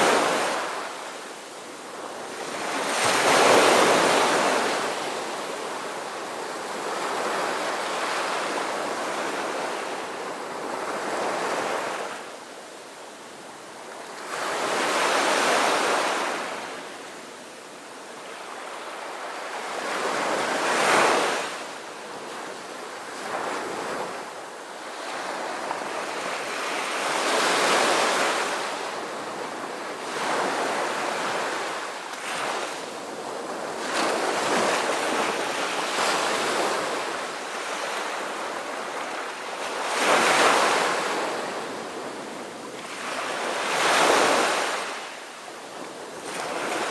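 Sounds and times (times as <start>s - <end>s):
waves washing in: 0.0s - 12.3s, 23.0s - 46.9s.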